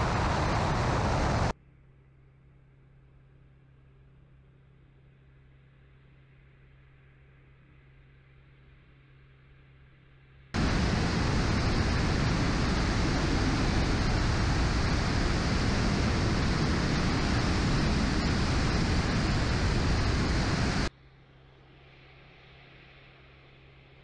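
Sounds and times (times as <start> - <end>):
electric ducted fans and airflow: 0.0 - 1.5, 10.6 - 20.9
wind buffeting microphone: 0.0 - 1.5, 10.6 - 20.9.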